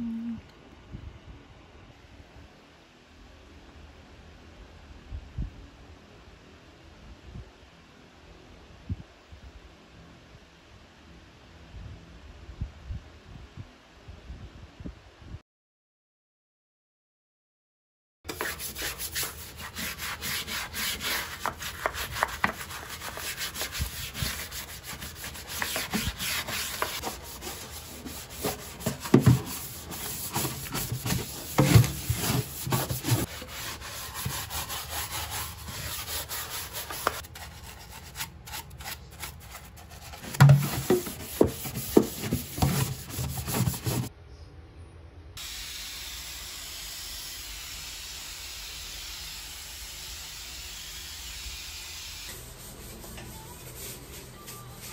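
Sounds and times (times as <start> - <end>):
scrubbing steel sink: 18.3 - 44.1
knocks on sink: 40.4 - 41.0.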